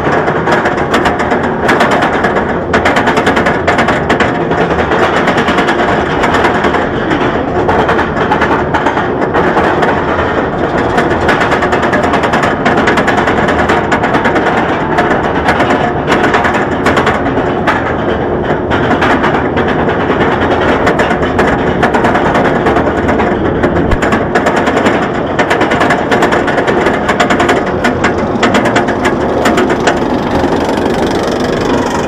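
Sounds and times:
roller coaster chain lift clattering: 0.0 - 32.0
ratchet clicking rapidly: 23.7 - 32.0.

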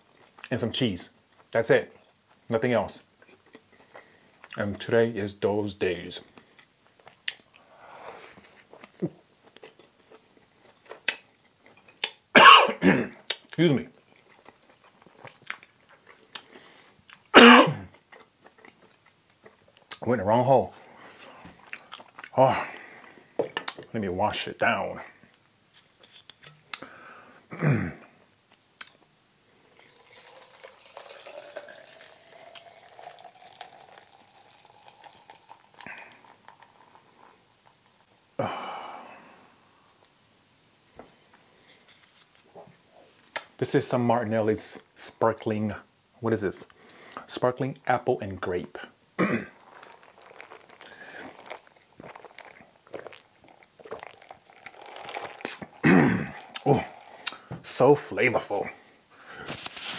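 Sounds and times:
juice pouring into a glass jar: 29.6 - 38.2, 49.5 - 58.1
slurping through a straw: 29.8 - 37.4, 49.5 - 57.5
swallowing gulps: 49.2 - 57.6
mouth clicks: 56.5 - 57.5.

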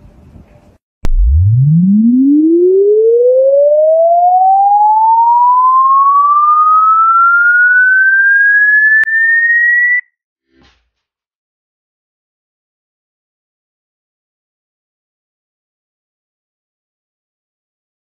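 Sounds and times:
rising whistle-like tone: 1.0 - 10.1.

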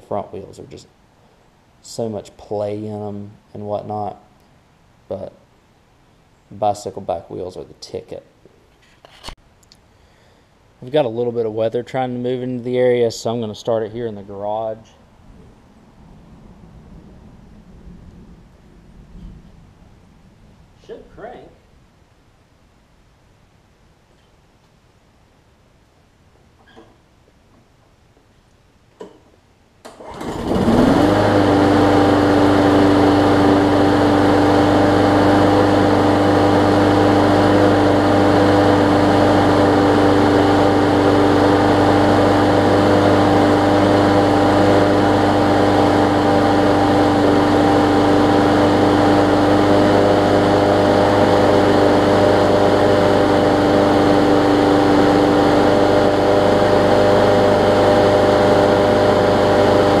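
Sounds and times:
lawn mower engine running: 29.9 - 60.0.

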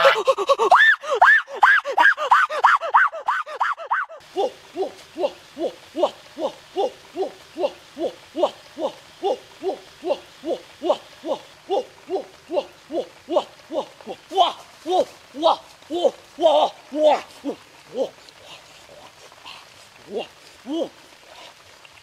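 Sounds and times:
goose honking: 0.0 - 0.3
man crying out high-pitched: 0.0 - 18.2, 20.1 - 21.0.

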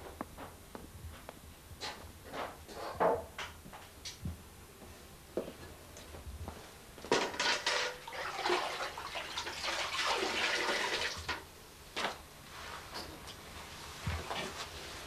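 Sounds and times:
water splashing and sloshing: 7.4 - 11.4.

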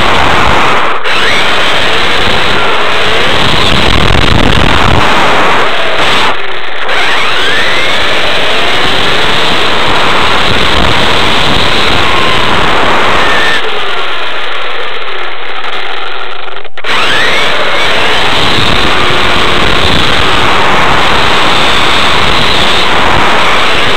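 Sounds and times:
electric motor whine: 0.0 - 23.9
rc car drivetrain and road noise: 0.0 - 23.9.

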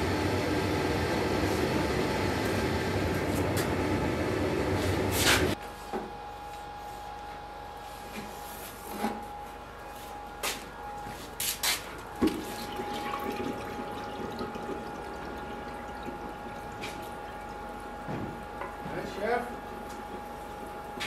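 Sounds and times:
gas forge burners humming: 0.0 - 21.0
oil bubbling and sizzling: 12.3 - 18.0.

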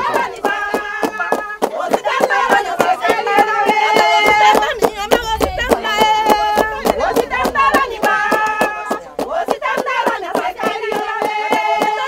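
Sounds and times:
fast handclaps: 0.0 - 12.0
women singing together: 0.0 - 12.0.

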